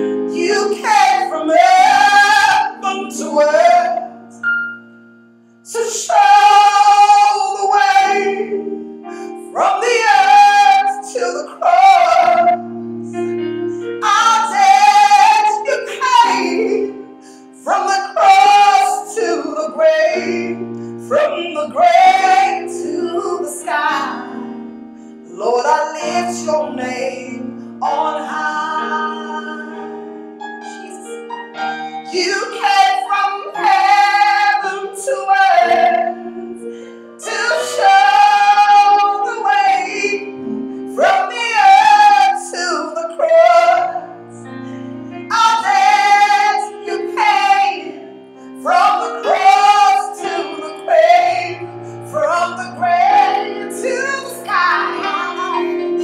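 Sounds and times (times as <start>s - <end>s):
woman singing: 0.0s - 4.2s, 5.7s - 8.6s, 9.4s - 12.7s, 14.0s - 24.6s, 25.3s - 29.9s, 32.0s - 36.5s, 37.2s - 44.1s, 45.3s - 48.0s, 48.6s - 56.0s
held instrumental chords: 26.9s - 38.9s.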